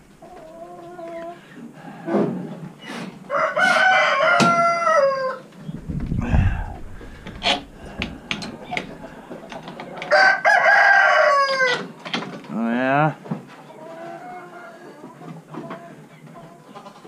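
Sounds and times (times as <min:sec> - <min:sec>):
rooster crowing: 0:03.3 - 0:05.5, 0:10.0 - 0:11.9
low bump: 0:05.7 - 0:09.4.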